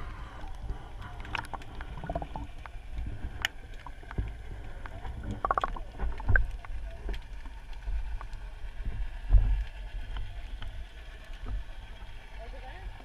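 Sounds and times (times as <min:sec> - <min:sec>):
muffled underwater rumble: 0:00.0 - 0:13.0
sharp underwater clicks: 0:00.4 - 0:08.4.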